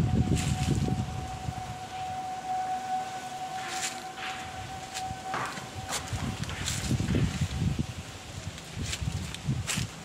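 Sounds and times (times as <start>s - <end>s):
steady high-pitched tone: 0.0s - 7.8s
leaves and branches rustling: 0.0s - 10.0s.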